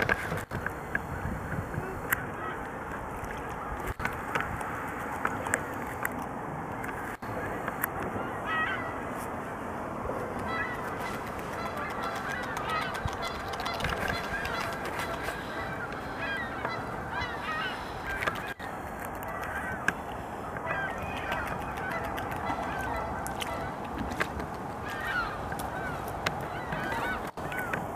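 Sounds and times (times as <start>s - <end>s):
geese honking: 8.2s - 9.1s, 10.3s - 18.6s, 19.3s - 24.2s, 24.8s - 27.8s.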